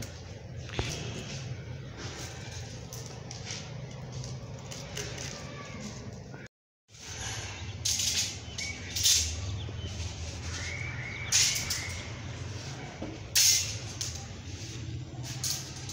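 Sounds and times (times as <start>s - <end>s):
birds chirping: 5.4s - 14.9s.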